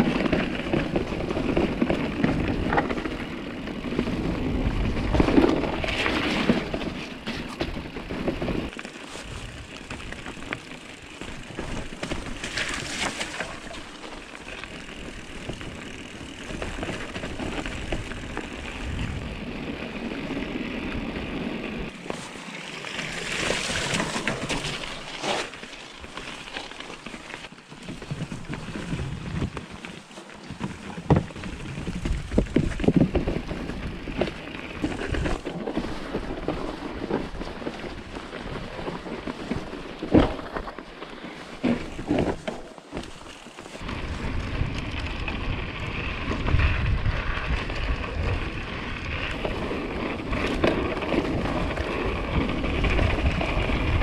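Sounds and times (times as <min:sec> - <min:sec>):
bike rattling: 0:00.0 - 0:54.0
bike tyres rolling on snow: 0:00.0 - 0:54.0
wheels splashing through stream: 0:00.0 - 0:54.0
bike knocking over bumps: 0:26.6 - 0:37.5, 0:41.6 - 0:44.3
wind on microphone: 0:43.8 - 0:54.0.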